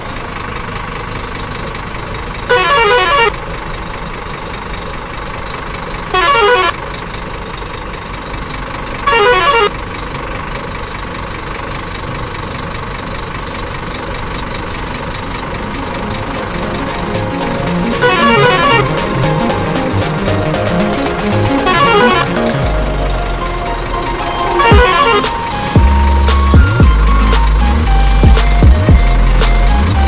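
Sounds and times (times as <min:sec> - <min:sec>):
engine rumble: 0:00.0 - 0:30.0
truck horn blasts: 0:02.5 - 0:03.4, 0:06.1 - 0:06.8, 0:09.0 - 0:09.8, 0:15.4 - 0:27.4.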